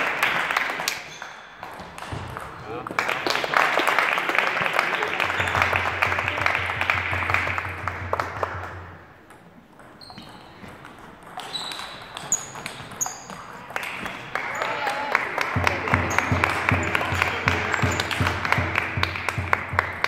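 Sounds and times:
applause: 0.0 - 9.0, 13.7 - 20.0
table tennis ball bouncing: 0.7 - 3.5, 5.2 - 20.0
murmur of voices: 14.4 - 19.3.

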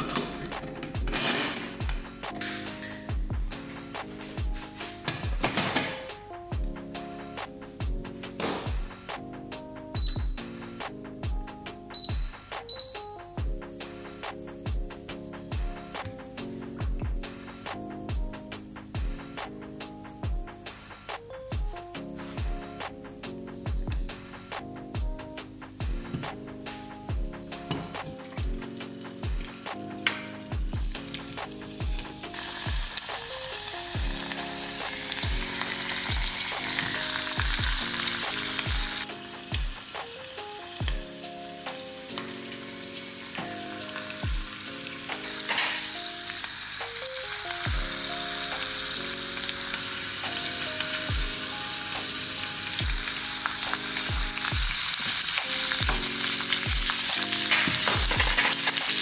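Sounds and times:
background music with beat: 0.0 - 59.0
vegetables sizzling in butter: 27.3 - 59.0.

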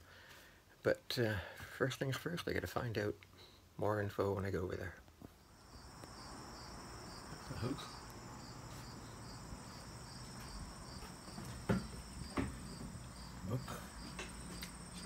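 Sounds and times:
crickets trilling: 5.4 - 15.0
sharp knocks: 11.3 - 12.9.

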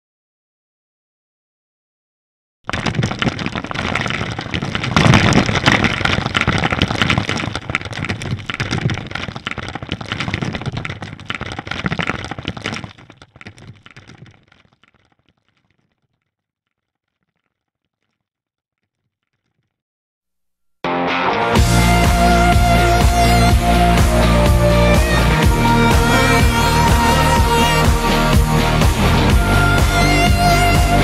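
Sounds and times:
blocks crumbling and cracking: 2.7 - 19.7.

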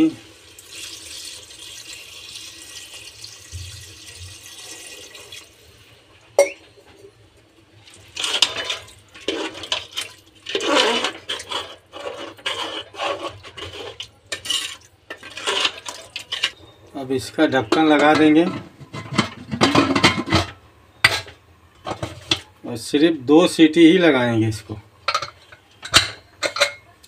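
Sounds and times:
water pouring into a pot: 0.0 - 6.0, 7.8 - 16.6
ladle stirring and scraping pot: 7.9 - 16.8, 17.5 - 22.5, 25.0 - 27.0.

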